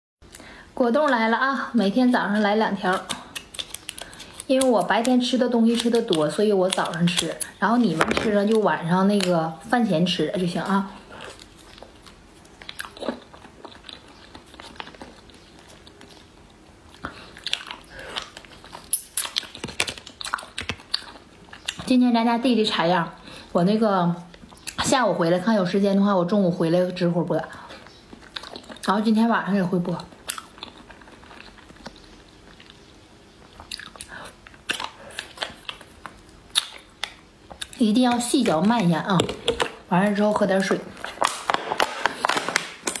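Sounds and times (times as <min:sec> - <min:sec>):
chewing jelly: 0:02.2 - 0:09.7, 0:10.5 - 0:22.0, 0:27.5 - 0:29.1, 0:29.8 - 0:39.8.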